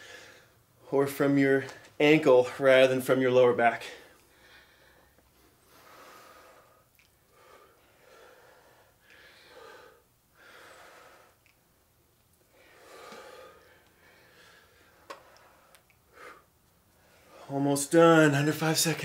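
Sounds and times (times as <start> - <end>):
heavy breathing from exertion: 3.8 - 11.4, 12.5 - 17.8.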